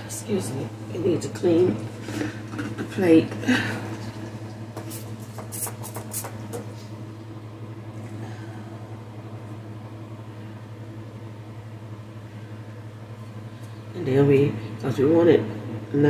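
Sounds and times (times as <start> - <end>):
steady low hum: 0.0 - 16.0
paper towel wiping glass: 4.8 - 6.6
spray bottle squirts: 4.9 - 6.4.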